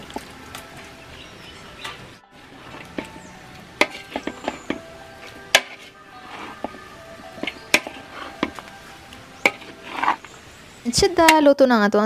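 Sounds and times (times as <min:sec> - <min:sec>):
metal spatula clanking in wok: 0:02.7 - 0:08.7, 0:09.4 - 0:10.3.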